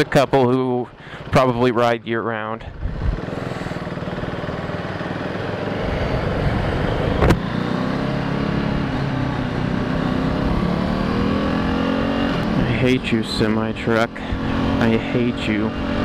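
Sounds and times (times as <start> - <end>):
wind rushing over microphone: 2.7 - 3.5
motorcycle engine under throttle: 2.7 - 16.0.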